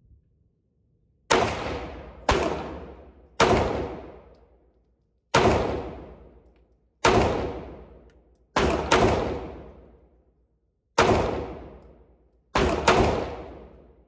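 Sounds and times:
pistol shots echoing: 0:01.3 - 0:04.3, 0:05.3 - 0:06.4, 0:07.0 - 0:08.0, 0:08.6 - 0:10.0, 0:11.0 - 0:13.9.

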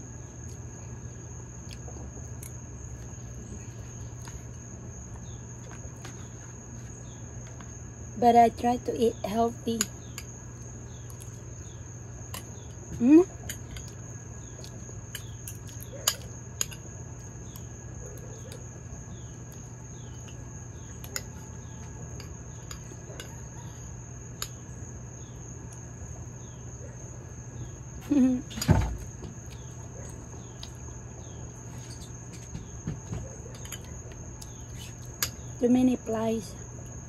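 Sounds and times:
insects trilling: 0:00.0 - 0:37.0
thump: 0:28.7 - 0:29.3.

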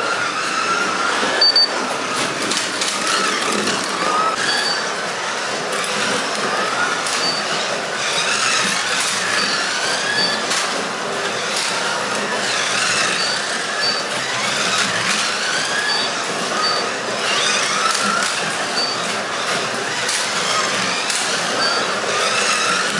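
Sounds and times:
cars rumbling on plastic track: 0:00.0 - 0:22.9
slot car motors whining: 0:00.0 - 0:22.9
short high beeps: 0:01.4 - 0:01.7.

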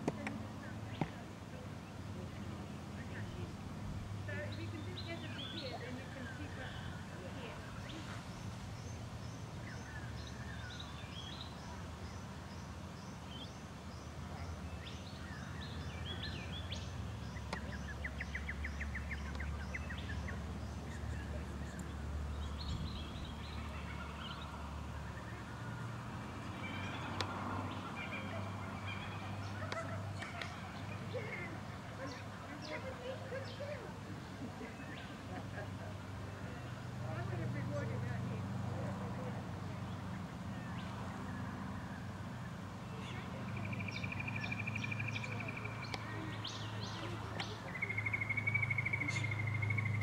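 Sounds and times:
birds chirping: 0:00.0 - 0:50.0.

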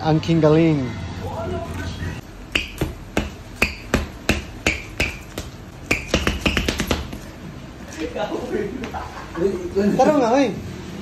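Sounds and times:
shoe soles squeaking on tiles: 0:01.7 - 0:07.4.

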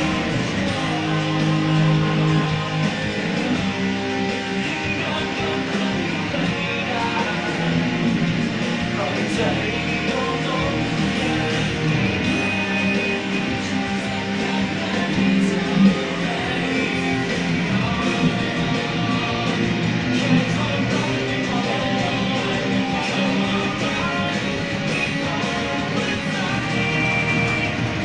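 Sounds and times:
guitar playing chords and notes: 0:00.0 - 0:28.0.

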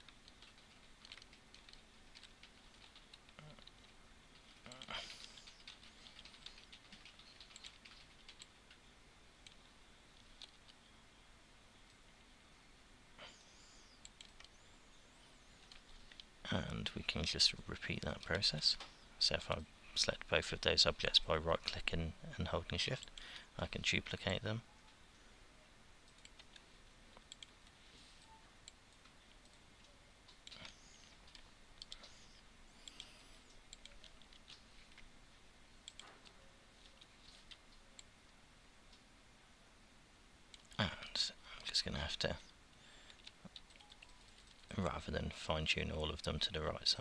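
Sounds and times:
computer keyboard and mouse clicks: 0:00.0 - 0:08.8, 0:28.7 - 0:35.1, 0:35.8 - 0:38.1, 0:43.1 - 0:44.7
low hiss: 0:00.0 - 0:47.0.

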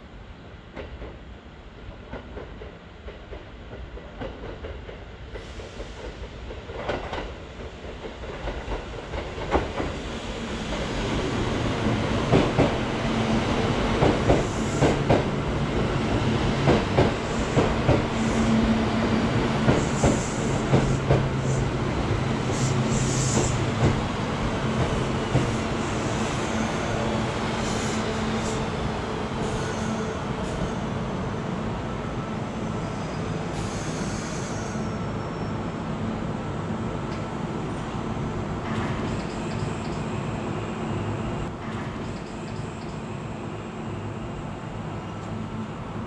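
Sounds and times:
electric train running hum: 0:07.5 - 0:34.1.

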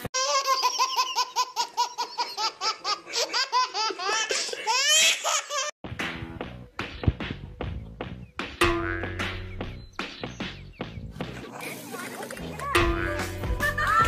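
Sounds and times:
child laughing: 0:00.2 - 0:05.8.

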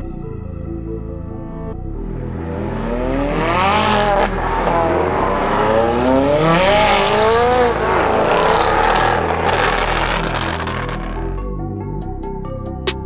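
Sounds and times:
sports car accelerating hard: 0:02.0 - 0:11.5.

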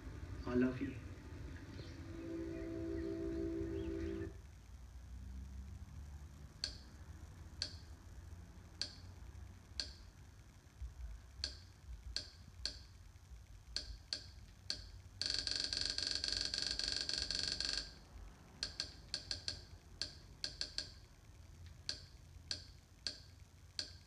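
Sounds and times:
steady multi-tone sound: 0:00.0 - 0:04.4.

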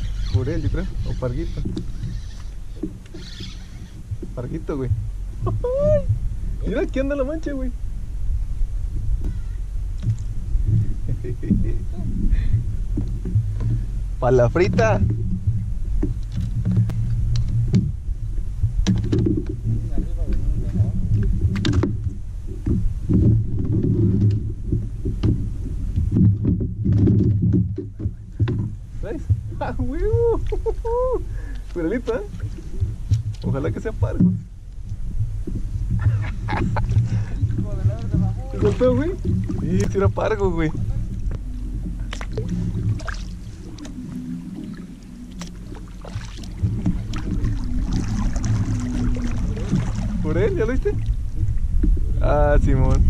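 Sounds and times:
water against a kayak: 0:00.0 - 0:53.0
wind: 0:00.0 - 0:53.0
fishing tackle clicks and knocks: 0:18.8 - 0:19.6
paddle dipping and splashing: 0:30.4 - 0:52.2
water dripping off paddle: 0:41.2 - 0:50.1.

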